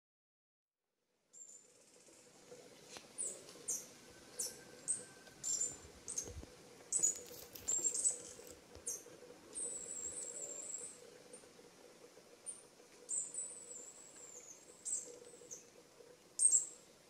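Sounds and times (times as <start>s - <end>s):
small bird chirping: 1.3s - 2.3s, 3.2s - 11.5s, 12.4s - 15.8s, 16.4s - 16.9s.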